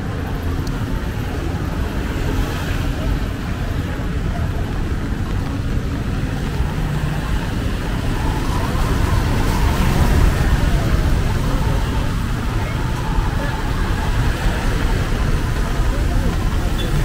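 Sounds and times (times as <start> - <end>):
auto-rickshaws passing: 0.0 - 17.0
traffic on wet road: 0.0 - 17.0.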